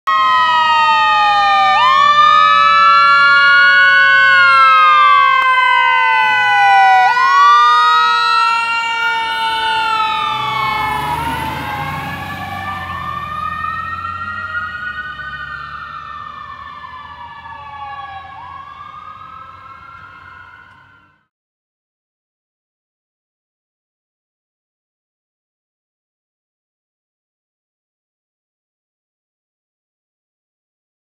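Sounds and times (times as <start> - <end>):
fire engine siren wailing: 0.0 - 21.3
truck engine rumble: 0.1 - 21.2.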